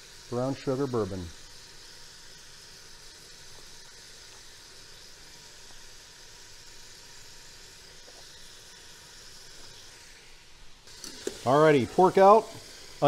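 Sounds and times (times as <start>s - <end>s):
meat sizzling in a pot: 0.0s - 13.0s.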